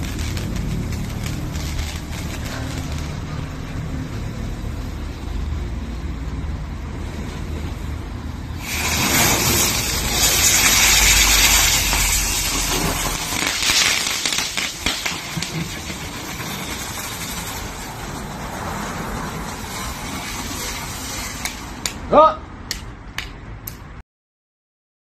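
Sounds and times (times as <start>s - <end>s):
sparks crackling: 0.0s - 5.2s, 8.6s - 22.1s
firework fizzing and hissing: 0.0s - 5.9s, 7.8s - 22.1s.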